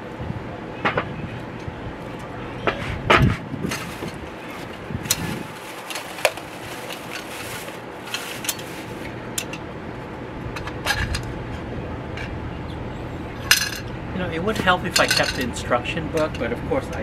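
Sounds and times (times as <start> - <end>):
low background rumble: 0.0 - 17.0
plastic bag rustling: 3.6 - 9.2.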